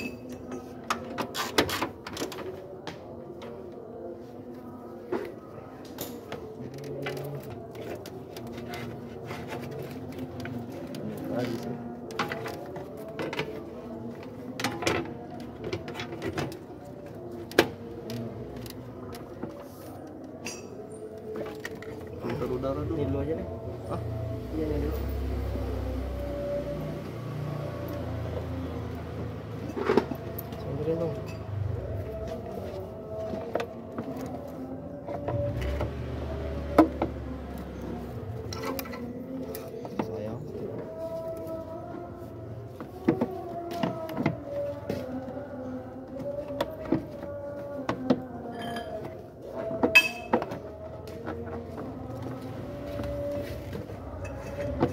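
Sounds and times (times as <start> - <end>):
plastic parts knocking and rustling: 42.8 - 45.2.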